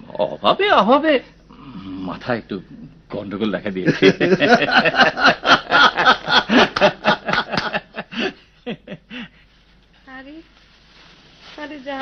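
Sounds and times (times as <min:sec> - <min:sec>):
men laughing: 0:03.8 - 0:09.4.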